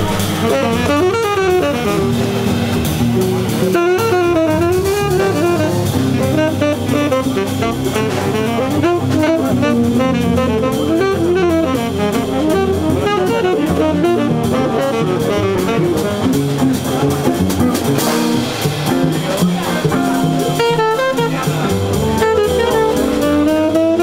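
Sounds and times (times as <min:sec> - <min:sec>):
saxophone solo: 0:00.0 - 0:19.1, 0:20.0 - 0:24.0
drum kit with cymbals: 0:00.0 - 0:24.0
walking bass: 0:00.0 - 0:24.0.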